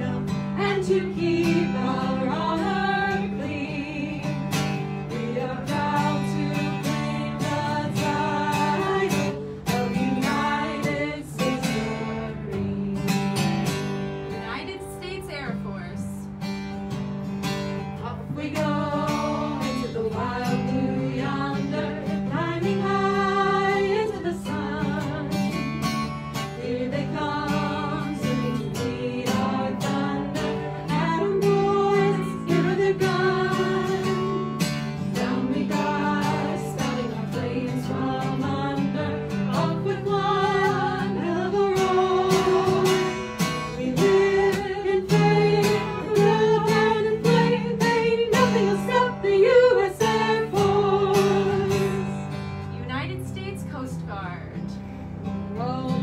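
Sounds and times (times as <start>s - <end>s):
acoustic guitars strummed and picked: 0.0s - 56.0s.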